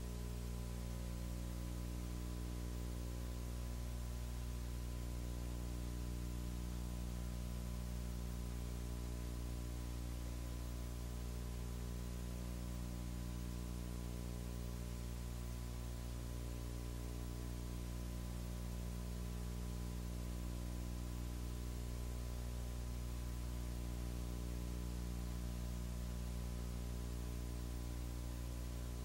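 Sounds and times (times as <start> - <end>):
electrical hum: 0.0 - 29.0
constant hiss: 6.5 - 29.0.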